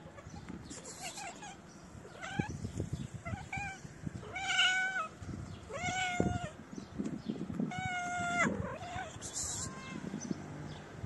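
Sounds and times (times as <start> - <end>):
cat meowing: 1.0 - 2.6, 3.2 - 6.6, 7.7 - 10.3.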